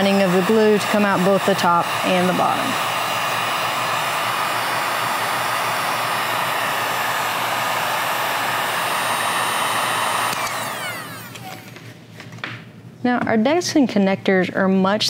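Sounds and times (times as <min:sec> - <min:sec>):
heat gun blowing with fan whine: 0:00.0 - 0:12.0.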